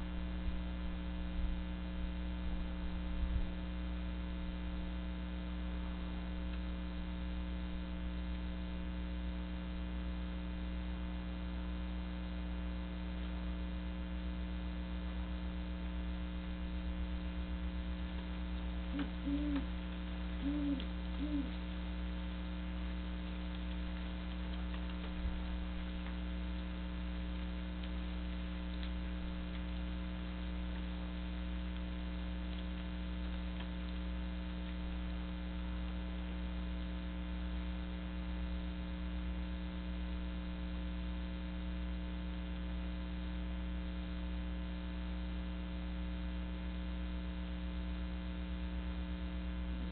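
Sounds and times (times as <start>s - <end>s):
electrical hum: 0.0s - 49.9s
owl hooting: 18.7s - 22.1s.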